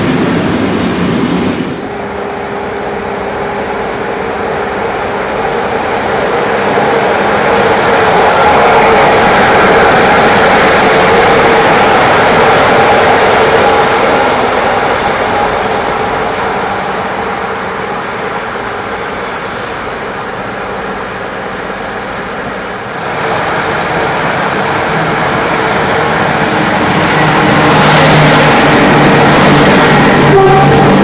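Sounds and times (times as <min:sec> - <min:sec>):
train wheels on rails: 0:00.0 - 0:31.0
high wheel squeal: 0:15.4 - 0:22.4.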